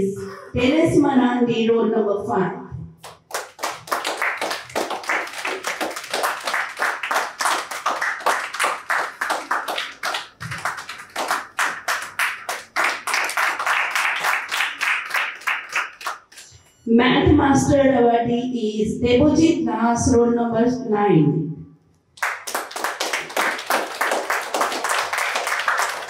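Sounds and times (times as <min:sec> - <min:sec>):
group of people clapping: 0:03.0 - 0:16.6, 0:22.2 - 0:26.0.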